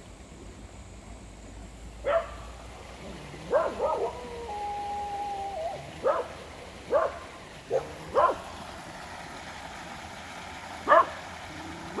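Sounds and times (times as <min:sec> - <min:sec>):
creek running over rocks: 0:00.0 - 0:12.0
dog barking: 0:02.0 - 0:02.4, 0:03.5 - 0:04.2, 0:06.0 - 0:08.4, 0:10.8 - 0:11.2.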